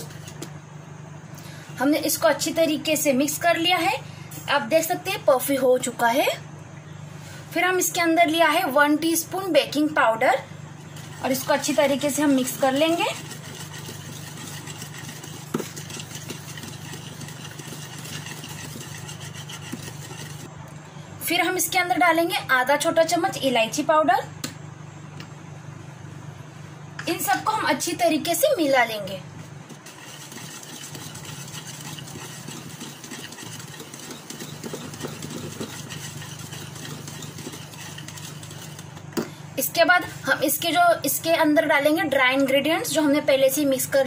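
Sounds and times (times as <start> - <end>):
steady low hum: 0.0 - 44.0
whisk scraping in plastic bowl: 10.8 - 20.5, 29.6 - 39.0.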